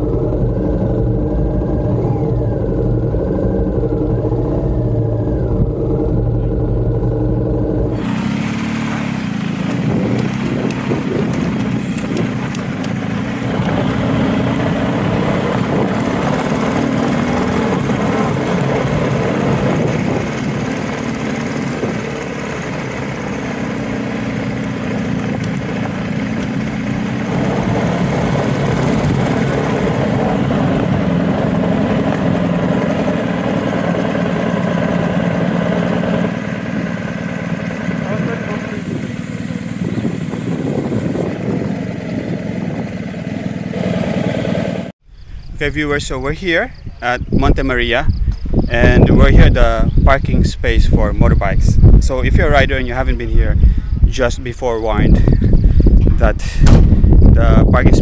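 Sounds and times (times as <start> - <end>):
motorcycle engine running: 0.0 - 45.6
road noise: 0.0 - 58.0.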